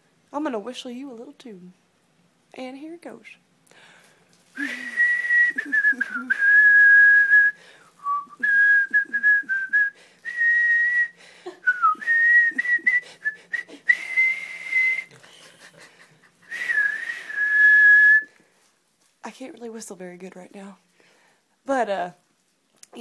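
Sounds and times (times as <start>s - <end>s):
person whistling a tune: 4.6s - 15.1s, 16.5s - 18.3s.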